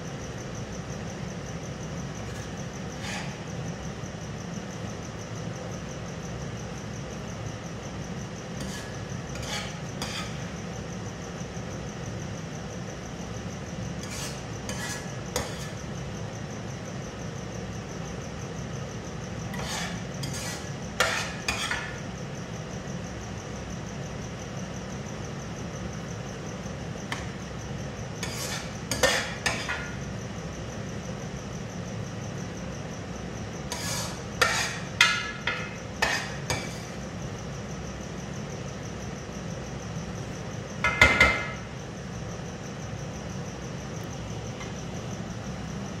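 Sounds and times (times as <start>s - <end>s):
steady low hum: 0.0s - 46.0s
metal ladle scraping a frying pan: 8.6s - 10.4s, 14.0s - 15.7s, 19.5s - 21.9s, 28.2s - 29.8s, 33.7s - 35.4s, 36.0s - 36.9s.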